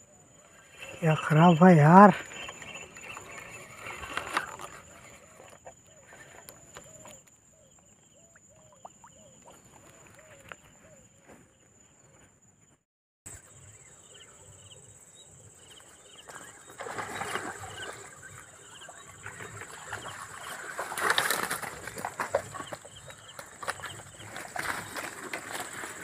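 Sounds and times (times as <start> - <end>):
rustling leaves and stems: 0.3 - 7.3, 15.8 - 26.0
footsteps on damp ground: 9.4 - 12.5.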